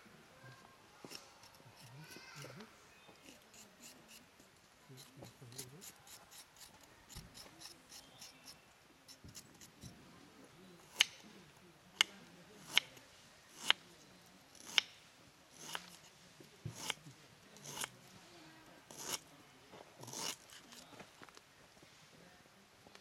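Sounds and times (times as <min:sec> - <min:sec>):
knife scraping ginger skin: 0:03.2 - 0:04.3, 0:05.0 - 0:09.9, 0:12.0 - 0:13.8, 0:14.6 - 0:14.9, 0:15.6 - 0:16.1, 0:16.7 - 0:17.0, 0:17.6 - 0:17.9, 0:18.9 - 0:19.2, 0:20.0 - 0:20.9.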